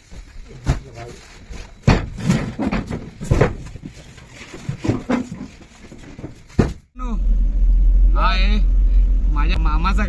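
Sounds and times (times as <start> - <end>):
cardboard cartons knocking and scraping: 0.0 - 6.9.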